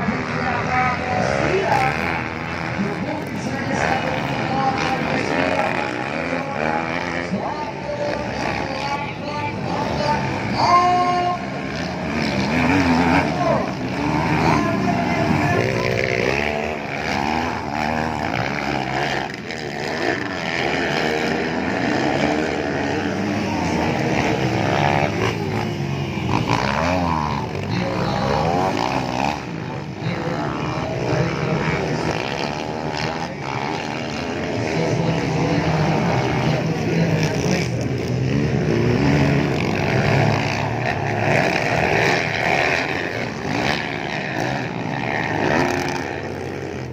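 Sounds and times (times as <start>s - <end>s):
motocross bike engines racing: 0.0s - 46.9s.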